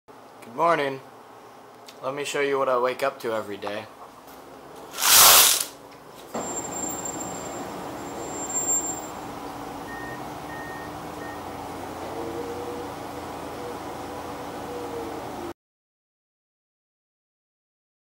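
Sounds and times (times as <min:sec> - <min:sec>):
loud brief burst of noise: 0:04.9 - 0:05.8
construction machinery din: 0:06.3 - 0:15.5
engine tone: 0:06.3 - 0:15.5.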